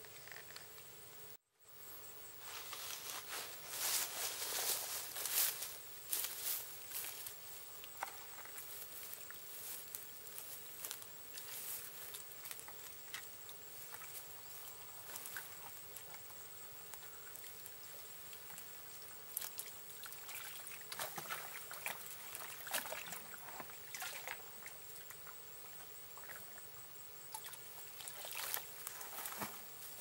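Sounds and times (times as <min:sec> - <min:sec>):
water sloshing and splashing: 0:17.2 - 0:25.3, 0:27.3 - 0:29.7.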